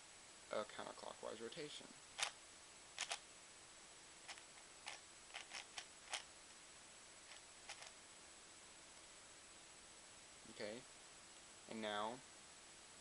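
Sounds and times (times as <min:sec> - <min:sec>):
puzzle layers clicking: 0:03.0 - 0:03.2, 0:04.3 - 0:06.3, 0:07.3 - 0:07.9.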